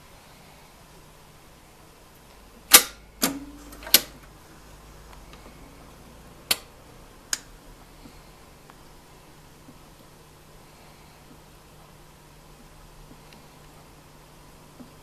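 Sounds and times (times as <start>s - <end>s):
faint turntable hum: 0.0s - 15.0s
record changer mechanical clicks: 2.6s - 4.4s, 6.4s - 7.6s.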